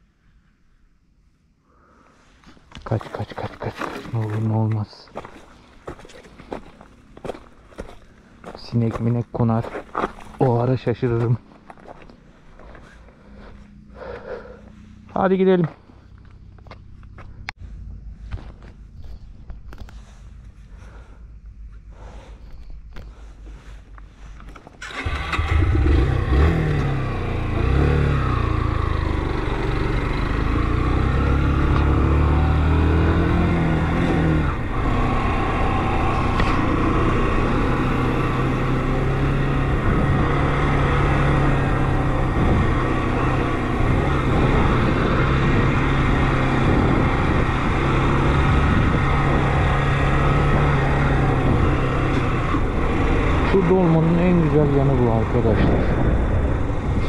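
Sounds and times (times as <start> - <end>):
motorcycle engine revving: 24.8 - 57.0.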